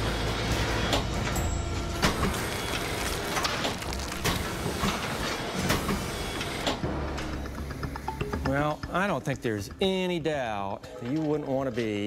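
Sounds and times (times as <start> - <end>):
machine humming: 1.4 - 10.7.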